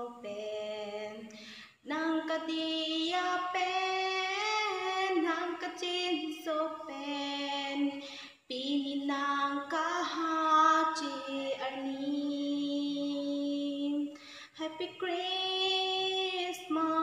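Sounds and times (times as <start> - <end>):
woman singing unaccompanied: 0.0 - 17.0.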